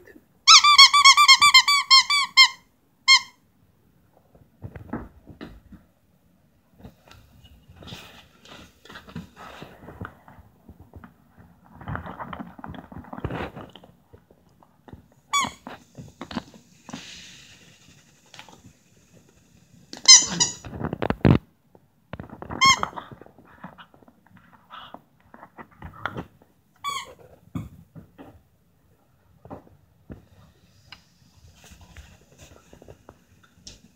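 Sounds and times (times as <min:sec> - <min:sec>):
squeaky toy squeaks: 0:00.5 - 0:03.4, 0:20.0 - 0:20.6, 0:22.6 - 0:23.0, 0:26.8 - 0:27.7.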